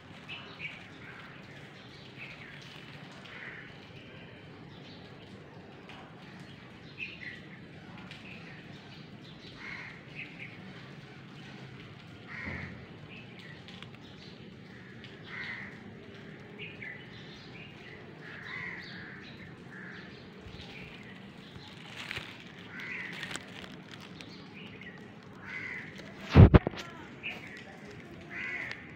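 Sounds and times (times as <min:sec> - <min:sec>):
outdoor background noise: 0:00.0 - 0:28.9
birds calling: 0:12.2 - 0:28.9.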